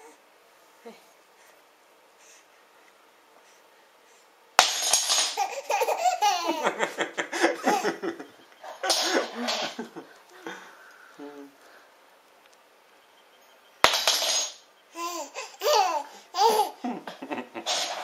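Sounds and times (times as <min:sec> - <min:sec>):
baby laughing hard: 0:05.2 - 0:08.3, 0:15.0 - 0:17.6.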